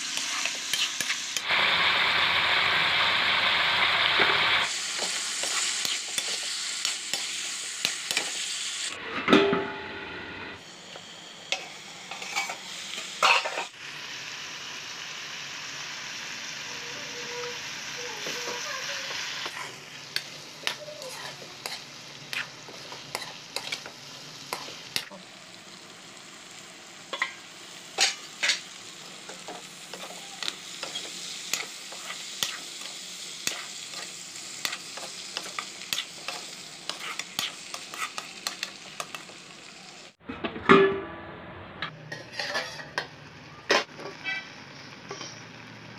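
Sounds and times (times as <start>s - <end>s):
metal spatula scraping a wok: 0.0s - 1.4s, 11.6s - 13.7s, 18.1s - 25.2s, 28.0s - 39.2s, 41.9s - 43.1s, 44.0s - 45.4s
meat and onions sizzling in a wok: 0.0s - 40.2s, 41.9s - 45.9s.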